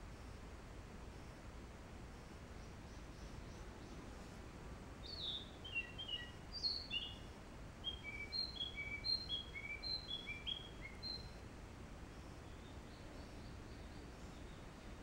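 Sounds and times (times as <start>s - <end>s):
faint background hiss: 0.0s - 15.0s
songbird singing whistled notes: 5.0s - 11.4s, 12.4s - 14.9s.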